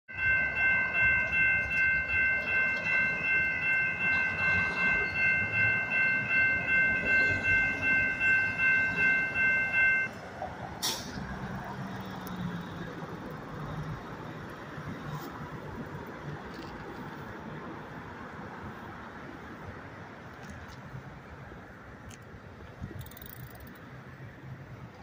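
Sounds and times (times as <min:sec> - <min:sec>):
crossing warning bells ringing: 0:00.1 - 0:10.3.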